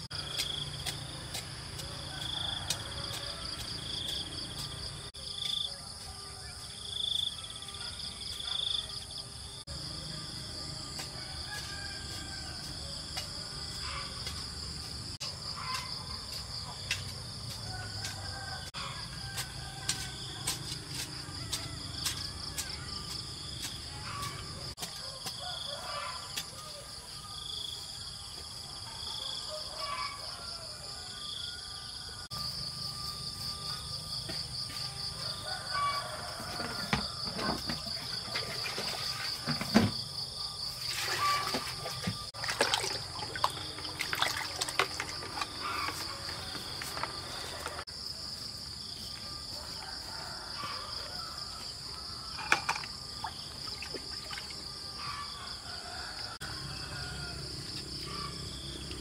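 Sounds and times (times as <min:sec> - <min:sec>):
insects chirring drone: 0:25.4 - 0:59.0.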